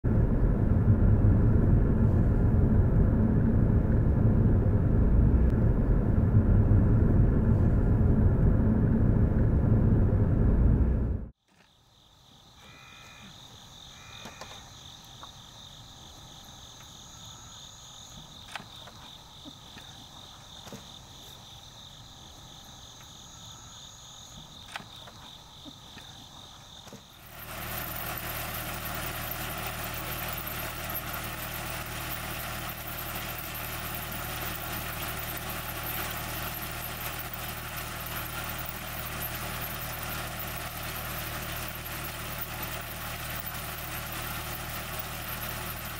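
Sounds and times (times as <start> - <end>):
tractor engine running: 0.0 - 11.4, 24.2 - 45.9
insects trilling: 11.4 - 45.9.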